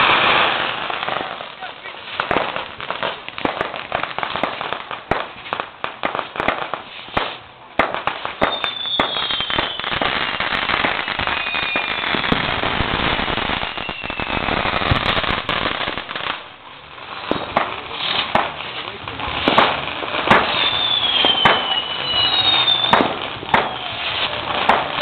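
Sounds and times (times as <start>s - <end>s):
crackling hiss of firecrackers: 0.0s - 25.0s
fireworks popping and banging: 0.0s - 25.0s
falling firework whistles: 8.0s - 16.3s, 19.4s - 25.0s.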